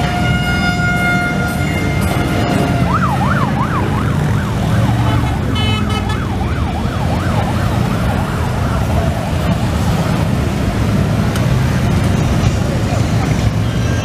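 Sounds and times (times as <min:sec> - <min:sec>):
electronic siren sweeping: 0:00.0 - 0:05.2
motorcycles rumbling: 0:00.0 - 0:14.0.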